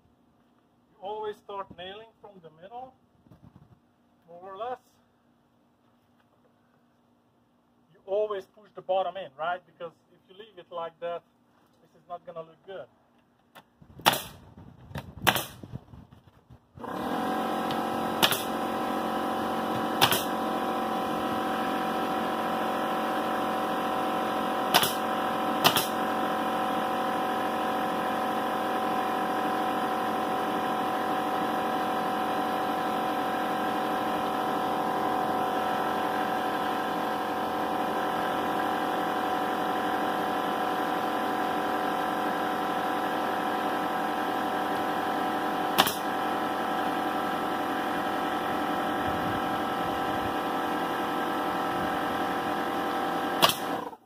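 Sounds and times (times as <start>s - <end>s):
nail gun pops: 13.5s - 15.7s, 17.6s - 18.6s, 19.7s - 20.4s, 24.6s - 26.1s, 45.7s - 46.2s, 53.4s - 54.0s
air compressor running: 16.8s - 54.0s.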